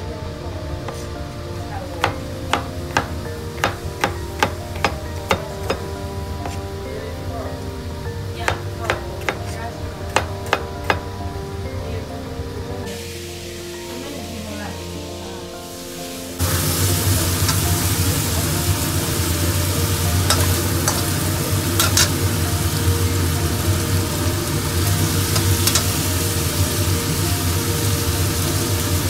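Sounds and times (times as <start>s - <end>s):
shrimp sizzling in hot oil: 0.8s - 11.6s, 12.9s - 29.0s
spatula scraping a wok: 24.6s - 26.1s.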